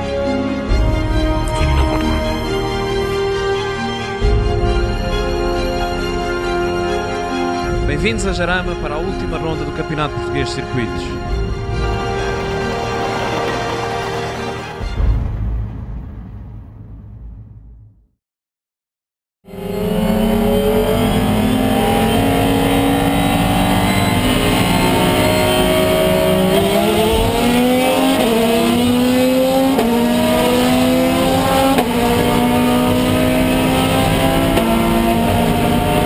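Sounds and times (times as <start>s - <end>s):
race car engine accelerating: 11.2s - 14.8s, 19.5s - 36.0s.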